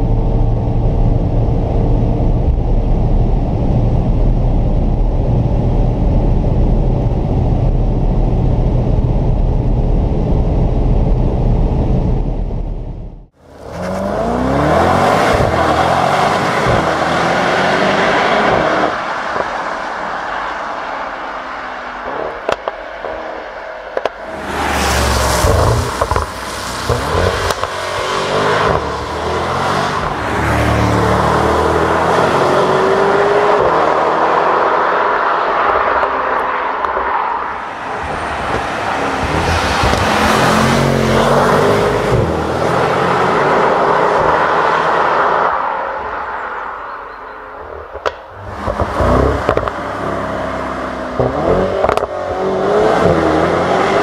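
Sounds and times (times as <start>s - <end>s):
car engine drone in cabin: 0.0s - 34.6s
car accelerating through upshifts: 13.6s - 19.8s, 24.0s - 45.6s, 48.0s - 54.0s
car passing by loudly: 24.2s - 47.4s.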